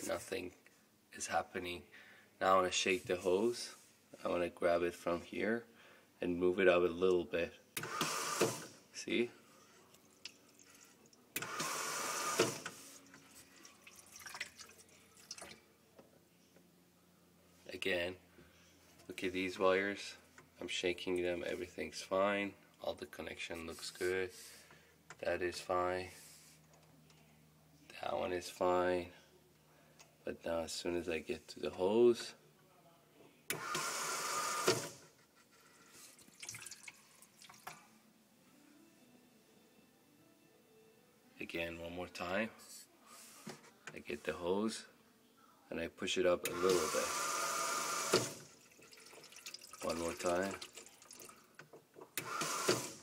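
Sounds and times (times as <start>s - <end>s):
faucet water running: 13.7s - 15.5s, 36.3s - 37.7s, 48.5s - 51.5s.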